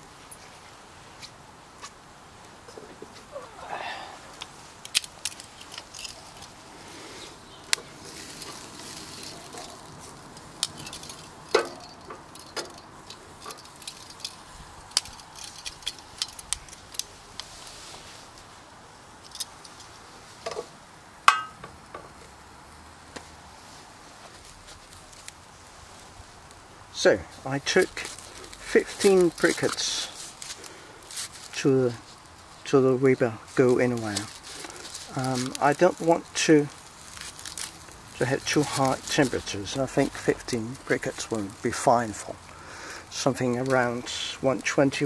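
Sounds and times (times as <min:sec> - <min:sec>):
metal tongs clicking on grill grate: 0:09.4 - 0:17.1.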